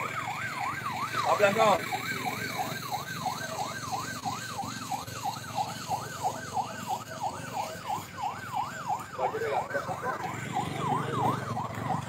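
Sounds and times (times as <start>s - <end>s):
emergency siren yelping: 0.0s - 12.0s
low rumble of vehicles: 0.0s - 12.0s.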